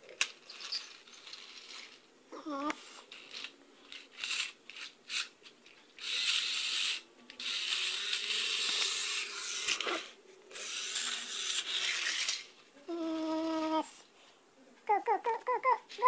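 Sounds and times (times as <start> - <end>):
toy train gears grinding: 0.2 - 2.1, 2.9 - 5.4, 6.0 - 13.6
toy train motor whirring: 0.2 - 5.4, 6.0 - 13.9.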